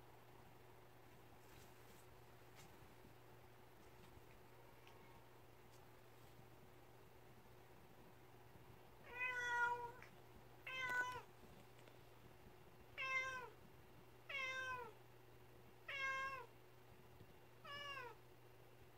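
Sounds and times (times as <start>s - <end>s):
cat meowing: 9.0s - 11.3s, 13.0s - 13.5s, 14.3s - 15.0s, 15.9s - 16.5s, 17.6s - 18.2s.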